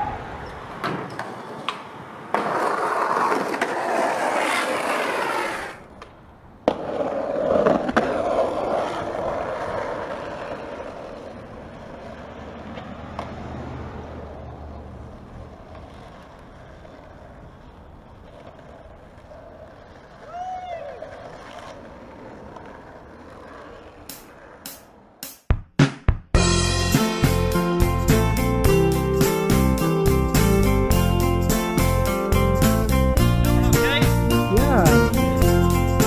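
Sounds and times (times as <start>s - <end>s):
skateboard clack: 0.0s - 14.1s, 14.7s - 25.2s
skateboard wheels rolling: 0.0s - 25.2s.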